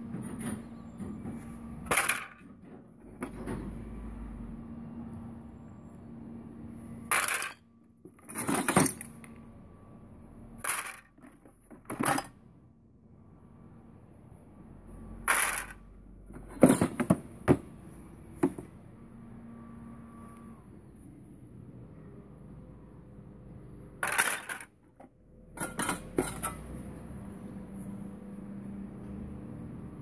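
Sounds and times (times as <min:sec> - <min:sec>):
metal tools clattering in crate: 0:01.8 - 0:02.4, 0:07.1 - 0:09.3, 0:10.6 - 0:12.4, 0:15.3 - 0:17.6, 0:24.0 - 0:24.8, 0:25.6 - 0:26.8.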